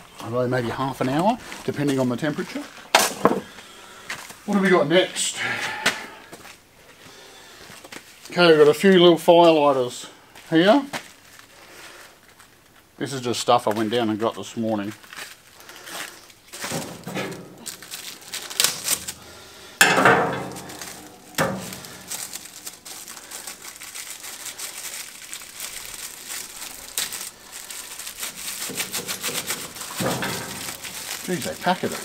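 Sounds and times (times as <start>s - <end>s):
plastic wrapping crinkling and tearing: 10.9s - 12.8s, 14.7s - 32.0s.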